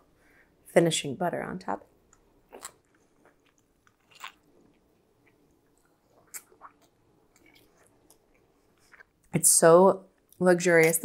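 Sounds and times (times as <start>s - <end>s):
mouth smacks and clicks: 2.1s - 5.4s, 6.2s - 9.3s
person chewing spaghetti: 2.1s - 9.3s.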